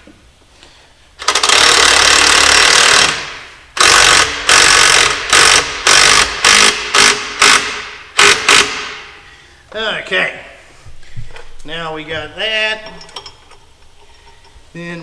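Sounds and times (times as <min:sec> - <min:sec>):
impact wrench bursts: 0:01.2 - 0:09.4.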